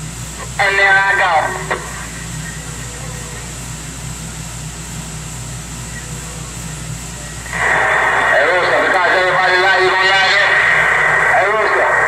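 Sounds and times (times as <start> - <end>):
radio static hiss: 0.1 - 4.0, 5.3 - 12.0
voice over radio: 0.4 - 3.4, 7.5 - 12.0.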